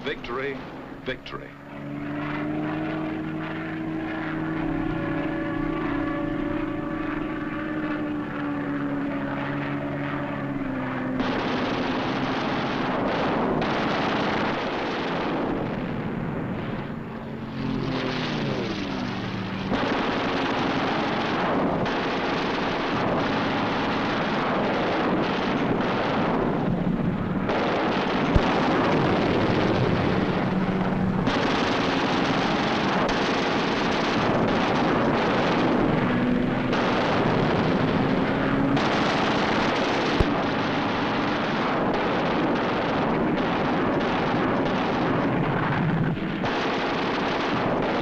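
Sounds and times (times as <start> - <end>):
plane diving engine note: 0.0 - 12.7
propeller aircraft engine drone: 0.0 - 48.0.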